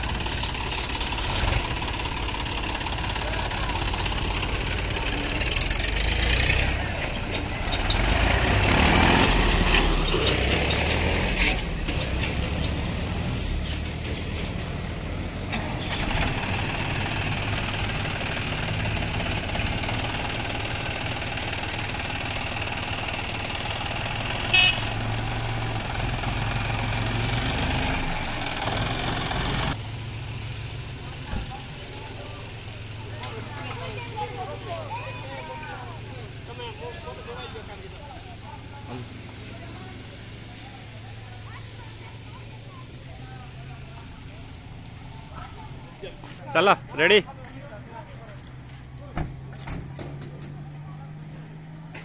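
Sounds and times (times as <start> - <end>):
tractor diesel engines running: 0.0 - 52.0
short horn beep: 24.5 - 24.9.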